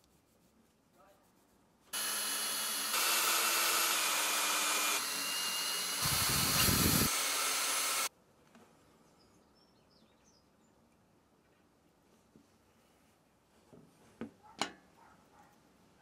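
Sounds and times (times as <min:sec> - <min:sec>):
cordless drill boring into wood: 0:02.0 - 0:08.1.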